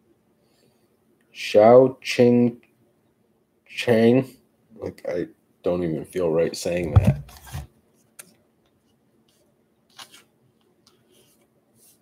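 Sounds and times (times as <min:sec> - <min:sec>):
card sliding into plastic sleeve: 0:09.9 - 0:10.3.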